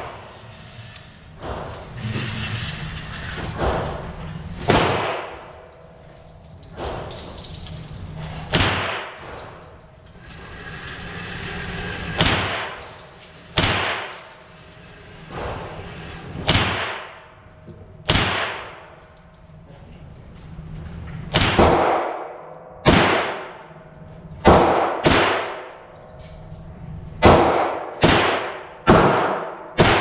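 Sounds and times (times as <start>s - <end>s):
gunshots echoing indoors: 4.6s - 6.0s, 8.4s - 9.6s, 13.5s - 14.4s, 16.4s - 17.3s, 18.0s - 19.1s, 21.3s - 25.8s, 27.2s - 30.0s.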